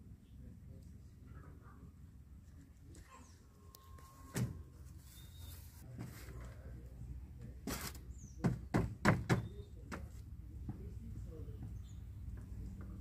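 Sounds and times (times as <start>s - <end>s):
hammer striking wooden board: 8.4s - 9.5s.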